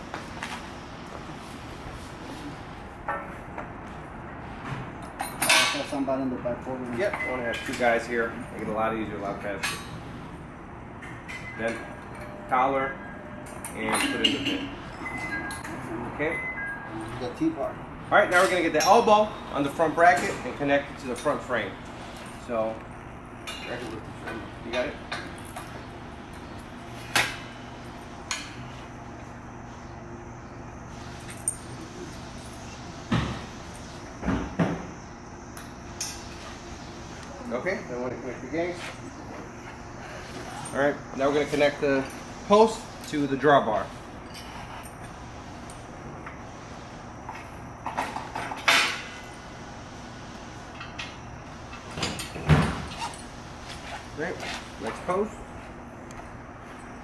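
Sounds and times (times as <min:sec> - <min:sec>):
low steady hum: 0:00.0 - 0:57.0
steel parts clanking: 0:11.0 - 0:16.7.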